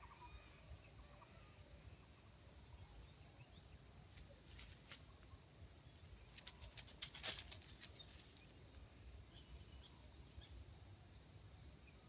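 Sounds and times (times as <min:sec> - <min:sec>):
dry leaves crackling: 0:04.4 - 0:05.3, 0:06.3 - 0:08.8.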